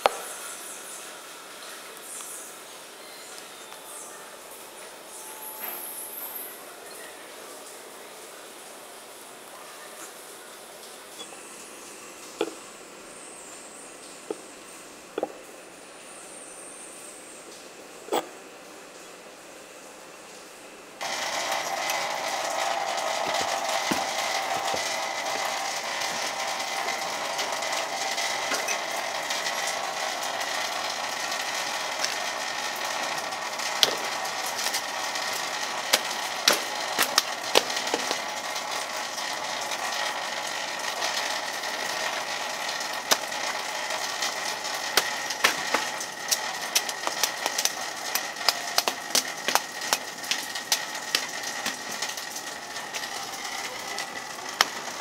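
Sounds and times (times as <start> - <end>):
steady hiss: 0.0 - 55.0
cleaver chopping leaves and stalks: 21.0 - 28.8, 31.4 - 38.4, 43.0 - 55.0.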